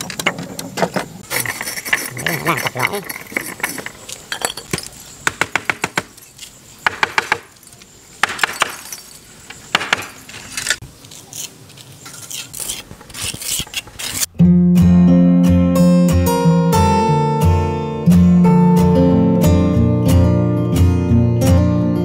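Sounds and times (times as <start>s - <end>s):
clay bricks clinking together: 0.0s - 5.9s.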